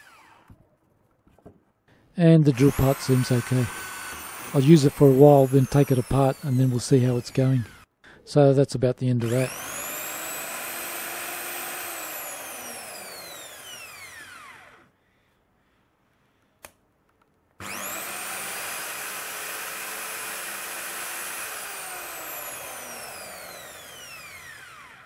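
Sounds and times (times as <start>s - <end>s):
hammer drill motor whining: 0.0s - 0.6s, 2.4s - 7.9s, 9.2s - 15.0s, 17.6s - 25.0s
drill trigger click: 2.5s - 7.9s, 9.2s - 14.8s, 17.6s - 24.8s.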